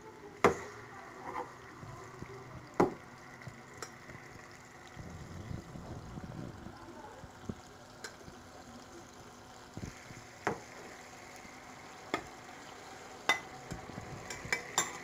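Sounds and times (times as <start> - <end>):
faint wet sizzling: 0.0 - 15.0
metal spoon clinking on pan: 14.3 - 15.0.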